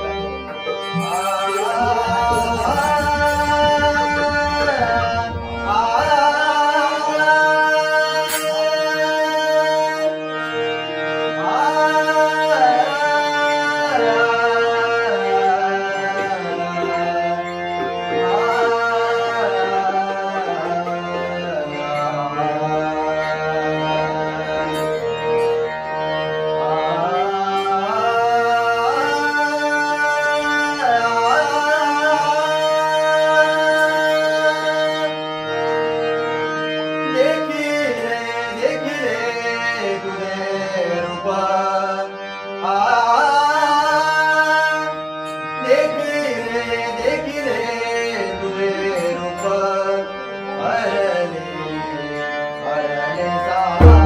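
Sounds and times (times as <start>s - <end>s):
man singing: 0.0s - 35.5s, 36.9s - 54.0s
harmonium drone: 0.0s - 54.0s
hand drum: 0.4s - 6.2s, 53.8s - 54.0s.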